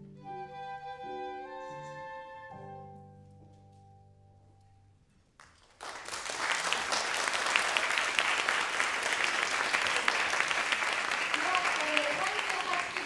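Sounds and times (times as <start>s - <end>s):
audience applause: 5.4s - 13.0s.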